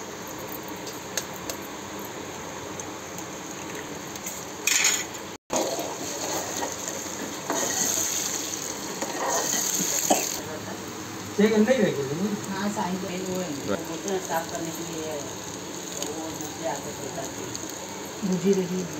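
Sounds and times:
eggs sizzling in a pan: 0.0s - 18.9s
steel spoon scraping a pan: 4.7s - 10.4s.

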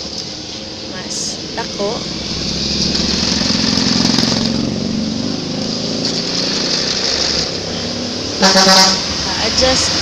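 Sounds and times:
sewing machine running: 6.0s - 7.6s.

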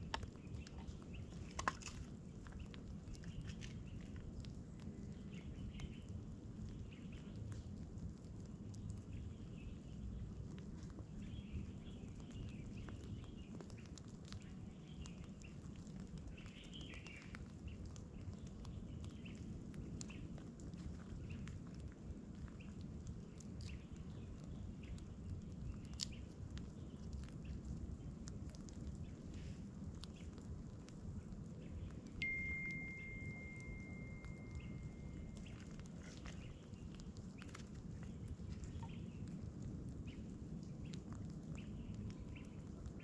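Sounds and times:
campfire crackling: 0.0s - 43.0s
low steady rumble: 0.0s - 43.0s
faint bird chirps: 31.6s - 39.3s.

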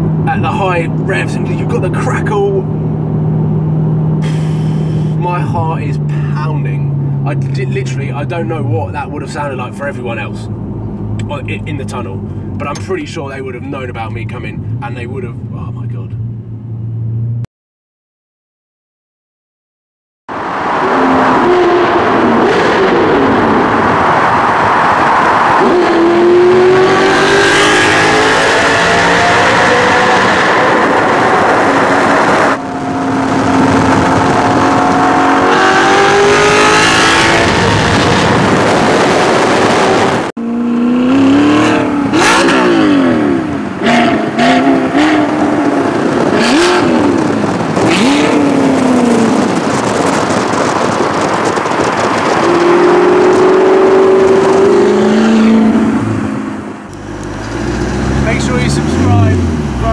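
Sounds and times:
sports car engine revving: 20.4s - 59.9s
exhaust crackles: 29.3s - 59.9s.

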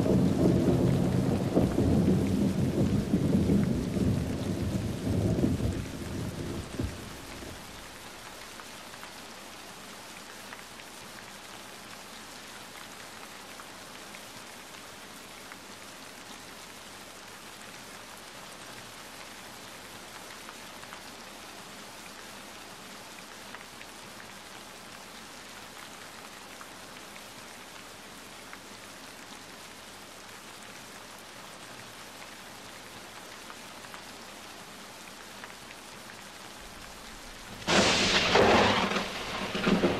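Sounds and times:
thunder rumble: 0.0s - 8.1s, 36.7s - 39.9s
rain drop ticks: 0.0s - 12.1s, 32.1s - 39.9s
steady rain: 0.0s - 39.9s.

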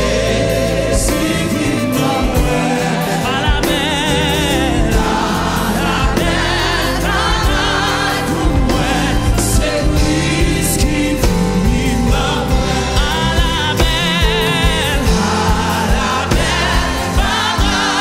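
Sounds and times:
group of singers: 0.0s - 18.0s
instrumental accompaniment with beat: 0.0s - 18.0s.

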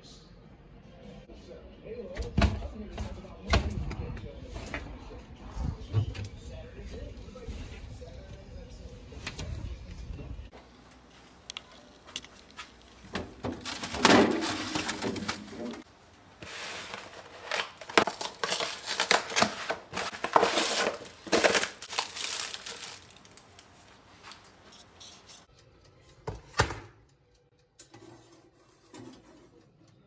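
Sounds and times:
plastic wrapper crinkling: 11.4s - 15.8s, 16.4s - 24.6s
cardboard box opening: 16.4s - 23.4s.

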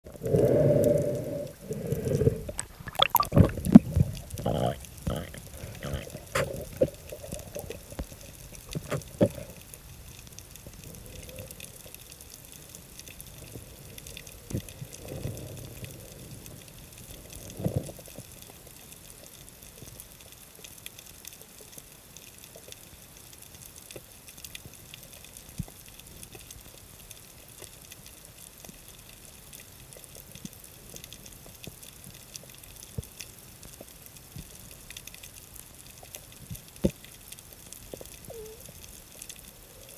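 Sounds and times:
underwater hiss with clicks: 0.2s - 39.9s
water sloshing: 1.7s - 4.4s.

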